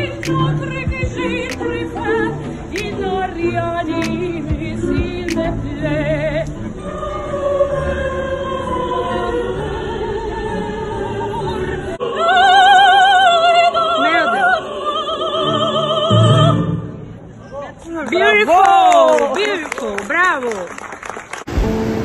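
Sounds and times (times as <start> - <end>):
woman singing opera: 0.0 - 16.9.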